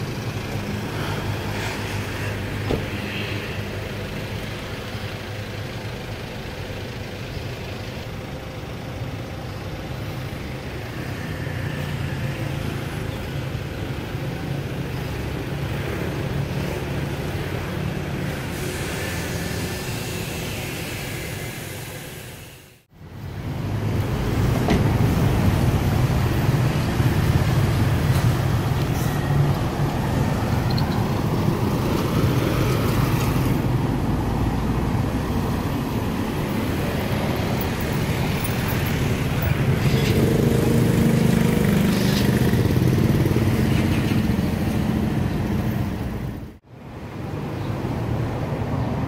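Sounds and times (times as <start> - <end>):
road and traffic noise: 0.0 - 49.0
vehicle engine rumbling: 0.0 - 49.0.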